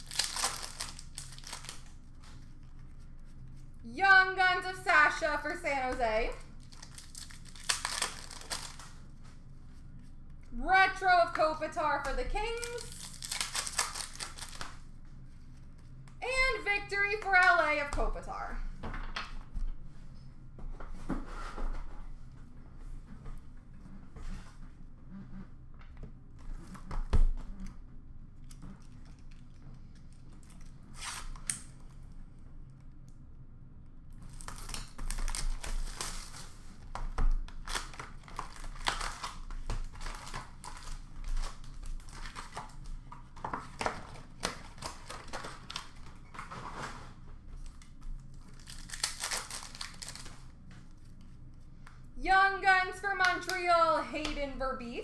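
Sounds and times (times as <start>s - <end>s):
card pack wrappers crinkling and tearing: 0.0s - 2.6s, 6.4s - 9.1s, 12.0s - 14.9s, 34.1s - 46.9s, 47.6s - 51.2s.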